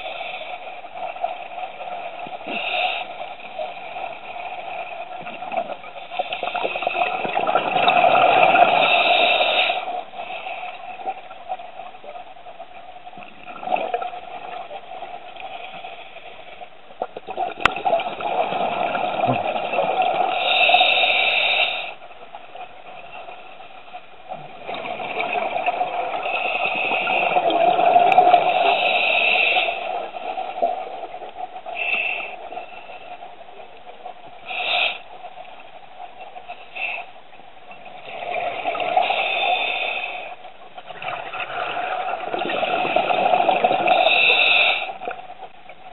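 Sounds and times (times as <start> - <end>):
exhaled bubbles underwater: 3.4 - 10.0, 13.1 - 15.7, 16.9 - 20.8, 24.2 - 31.8, 37.8 - 39.5, 40.6 - 45.9.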